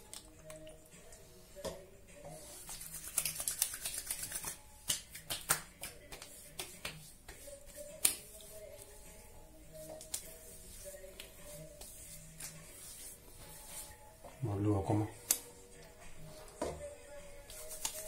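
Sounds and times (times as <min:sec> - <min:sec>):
hands patting skin: 0:02.4 - 0:08.9, 0:09.8 - 0:13.9, 0:15.2 - 0:15.5, 0:17.4 - 0:18.0.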